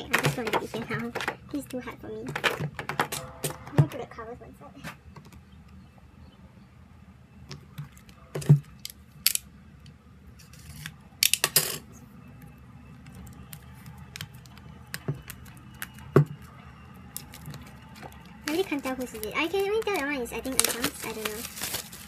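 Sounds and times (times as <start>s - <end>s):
crinkly plastic rustle: 17.1s - 22.0s.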